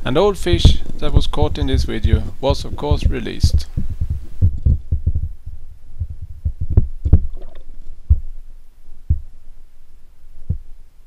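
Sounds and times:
underwater thumps and knocks: 0.5 - 5.4, 6.0 - 8.3.

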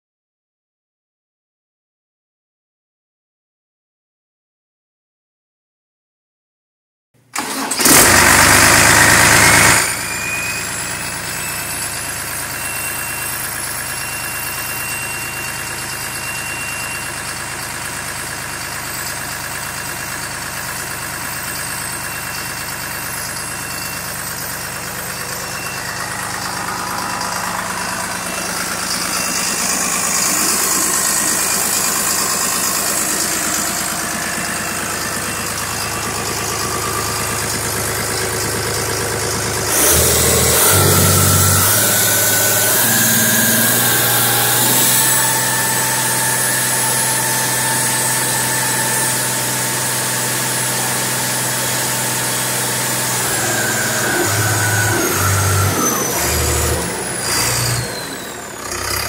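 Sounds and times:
diesel engine starting and idling: 7.2 - 59.0
high whine: 23.0 - 50.1.

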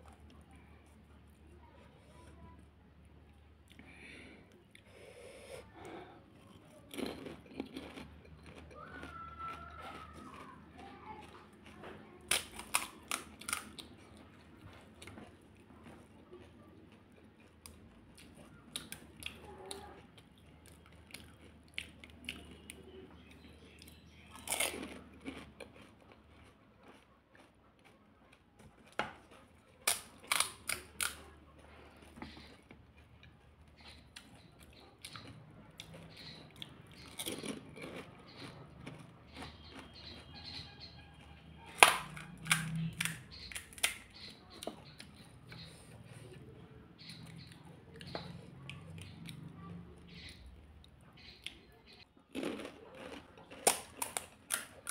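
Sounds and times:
wet chewing: 3.2 - 54.9
crisp shells crunching: 6.9 - 10.0, 52.3 - 54.9.

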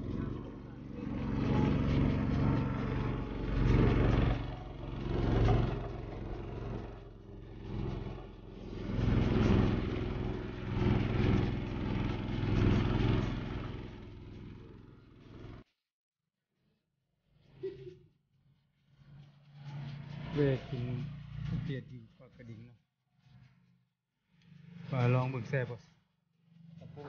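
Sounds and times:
boat motor running: 0.0 - 15.6.

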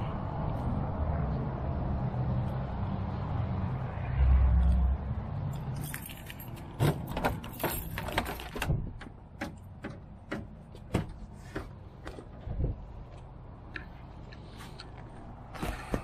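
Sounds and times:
keys jangling in door lock: 5.8 - 8.7.

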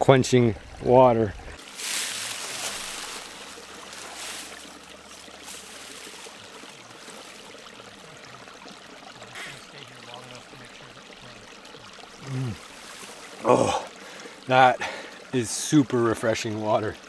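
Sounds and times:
stream trickling: 0.0 - 17.0.

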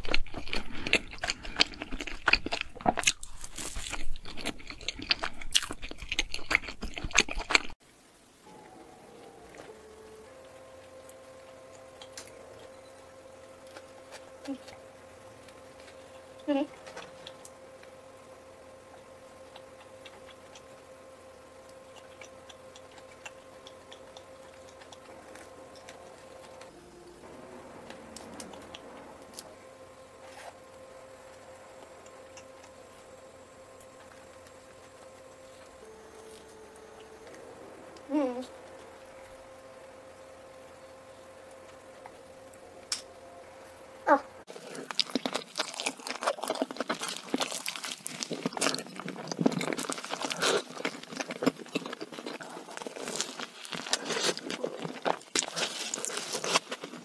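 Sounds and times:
biting and chewing doughnut: 0.0 - 7.8, 44.5 - 57.0
faint steady hum: 0.0 - 57.0.

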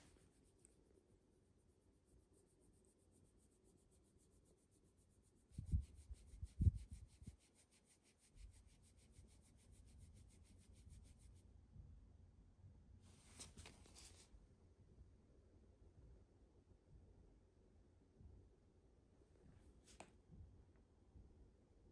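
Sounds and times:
hand rubbing dog fur: 0.0 - 11.2, 13.1 - 14.3.

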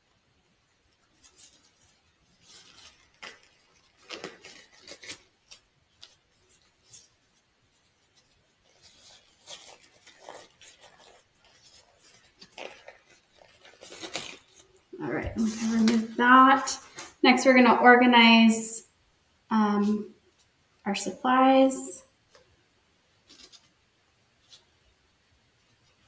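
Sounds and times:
gloves rustling and snapping: 0.9 - 16.2, 16.8 - 17.2, 23.2 - 23.7
paper wrapper crinkling: 0.9 - 17.2, 23.2 - 23.8.

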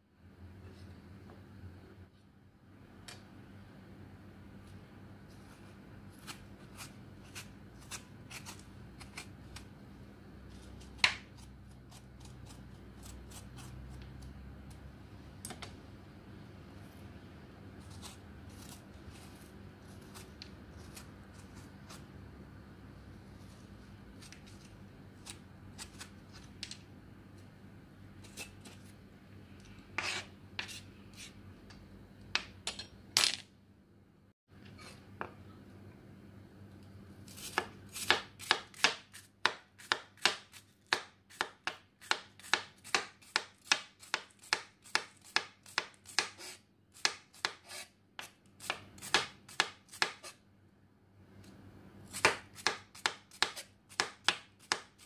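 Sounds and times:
knife chopping on cutting board: 37.3 - 50.4, 52.1 - 55.0.

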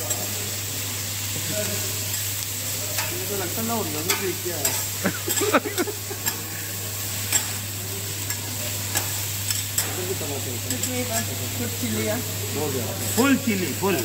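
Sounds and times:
cabbage sizzling on griddle: 0.0 - 14.0
metal spatulas scraping and clacking: 2.9 - 6.5, 7.2 - 10.1.

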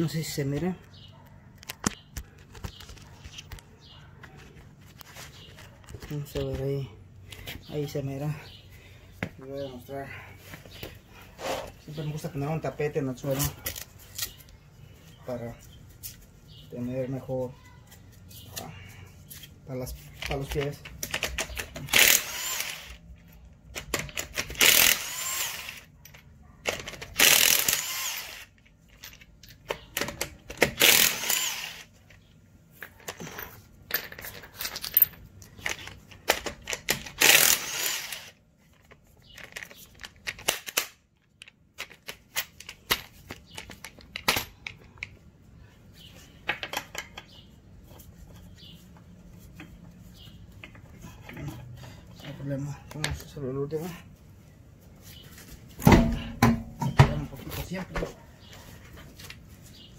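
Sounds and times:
tools and parts clattering: 20.0 - 22.2, 25.6 - 27.8, 28.5 - 31.3, 32.0 - 45.3, 46.0 - 53.4, 55.7 - 57.7
impact wrench bursts: 21.6 - 23.0, 24.1 - 25.9, 27.1 - 28.5, 30.6 - 31.9, 37.1 - 38.4.

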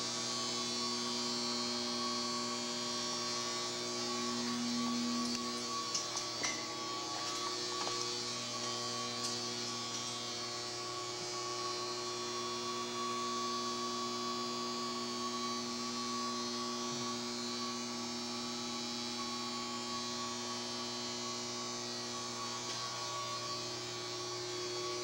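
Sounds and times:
electrical hum: 0.0 - 11.4.

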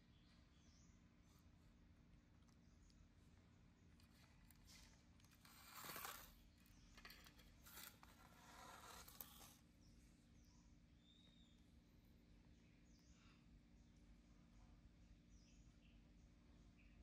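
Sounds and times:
faint rustles and scrapes: 2.4 - 10.2.

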